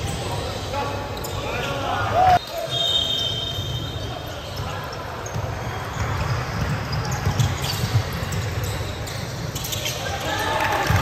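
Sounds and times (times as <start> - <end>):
basketball dribbling: 5.2 - 9.7.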